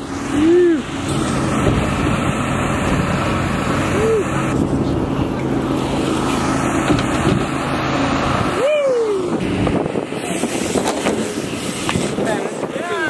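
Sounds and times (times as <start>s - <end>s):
generator running: 0.0s - 13.0s
inflator blower humming: 0.0s - 13.0s.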